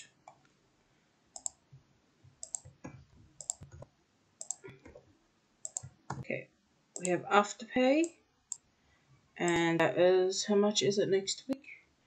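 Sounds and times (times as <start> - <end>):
keyboard and mouse clicks: 1.4 - 1.6, 2.4 - 6.3, 7.0 - 7.2, 9.4 - 9.8.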